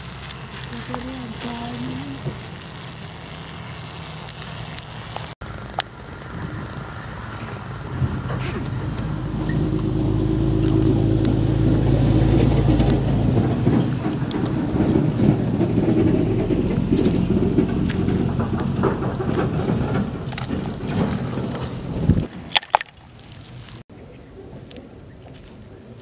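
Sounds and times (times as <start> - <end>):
motor running: 0.0 - 6.4.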